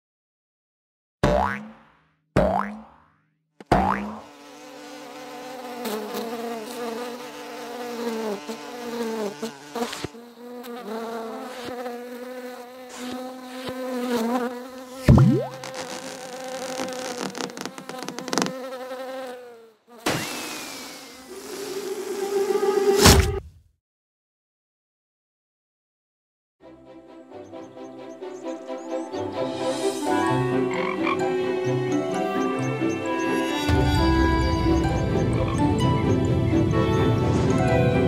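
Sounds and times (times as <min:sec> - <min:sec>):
springy bounce: 0:01.2 - 0:04.2
fly buzzing: 0:01.3 - 0:01.7, 0:03.7 - 0:23.2, 0:29.6 - 0:35.6
loud thump with rising glide: 0:22.8 - 0:23.6.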